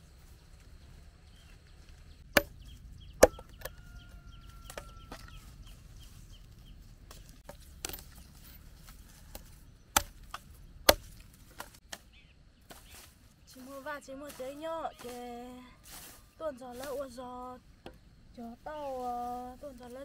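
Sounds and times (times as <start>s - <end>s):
machete chopping sticks: 2.3s - 2.6s, 3.2s - 3.8s, 7.1s - 8.6s, 9.2s - 12.1s.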